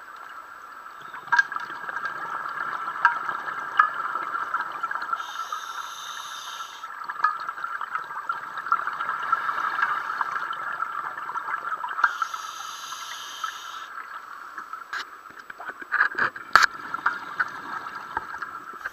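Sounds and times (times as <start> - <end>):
hissing regulator inhalations: 5.2 - 6.9, 12.0 - 13.9.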